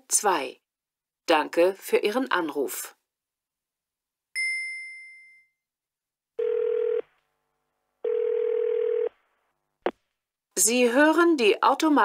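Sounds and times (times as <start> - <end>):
chime: 4.4 - 5.6
telephone ringing tone: 6.4 - 7.1, 8.0 - 9.2.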